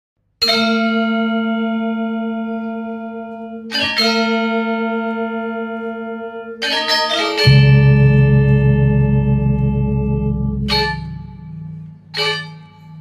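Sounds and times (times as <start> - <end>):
deep bell-like chord: 7.4 - 13.0.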